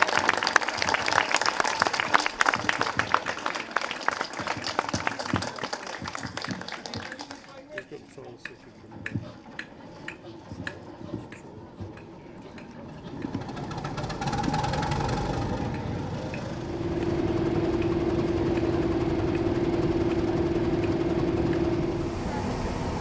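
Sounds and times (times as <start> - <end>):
diesel locomotive engine running: 0.0 - 23.0
steady droning tone: 8.6 - 23.0.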